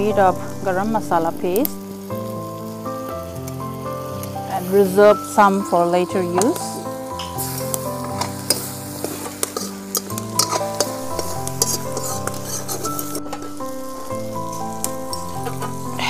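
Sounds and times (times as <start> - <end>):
chicken sizzling in pan: 0.0 - 16.0
soft background music: 0.0 - 16.0
metal ladle scraping pan: 7.2 - 13.8, 14.4 - 16.0.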